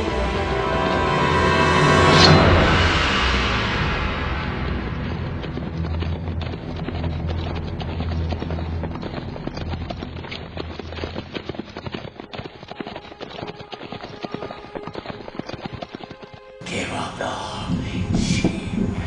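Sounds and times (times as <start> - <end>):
low droning tone: 0.0 - 11.0
galloping horse hooves: 2.3 - 16.6.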